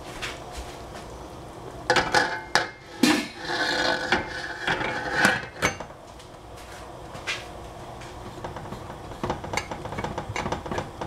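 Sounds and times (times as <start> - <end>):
metal lid clanking: 1.9 - 5.9
metal lid scraping with ringing: 1.9 - 5.9.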